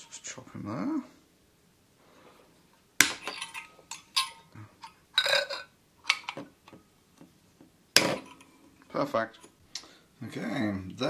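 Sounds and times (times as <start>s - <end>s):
metallic clinks: 3.2s - 6.4s.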